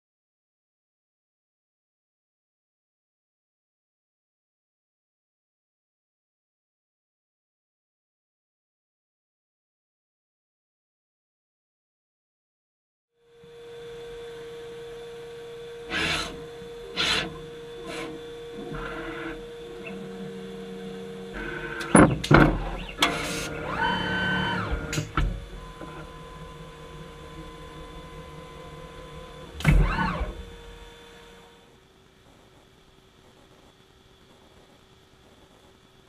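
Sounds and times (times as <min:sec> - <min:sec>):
machine humming: 0:13.2 - 0:36.0
motor whine: 0:13.2 - 0:36.0
print head clicks and knocks: 0:21.3 - 0:24.0, 0:24.6 - 0:26.2.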